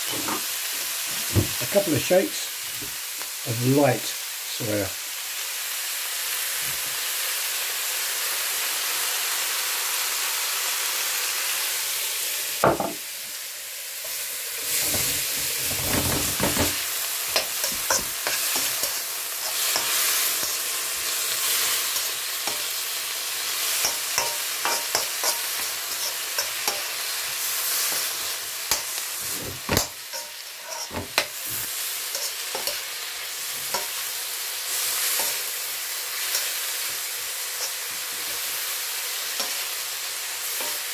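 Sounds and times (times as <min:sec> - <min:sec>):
vegetables sizzling in wok: 0:00.0 - 0:40.9
spatula scraping: 0:28.7 - 0:32.8.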